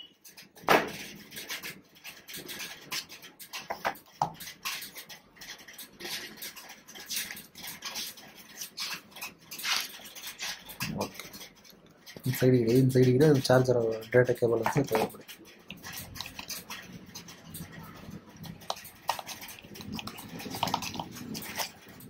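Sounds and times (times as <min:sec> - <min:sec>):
cardboard and paper rustling: 0:00.7 - 0:12.4.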